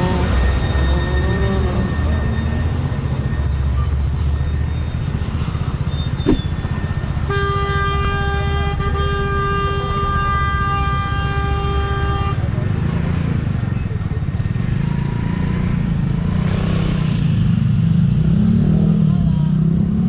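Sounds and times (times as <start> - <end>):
vehicle horn blast: 7.3 - 12.5.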